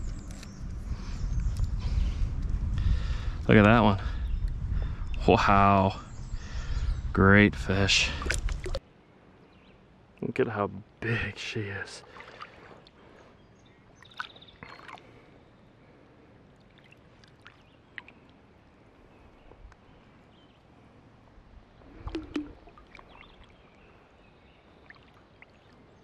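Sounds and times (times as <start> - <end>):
water splashing and lapping: 8.0 - 8.8, 12.0 - 13.2, 14.0 - 15.3, 16.5 - 18.6, 21.8 - 26.0.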